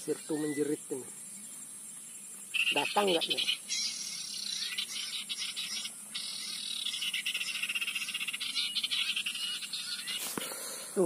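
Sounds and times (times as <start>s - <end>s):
high insect hiss: 0.0s - 11.0s
bird call through phone speaker: 2.5s - 10.3s.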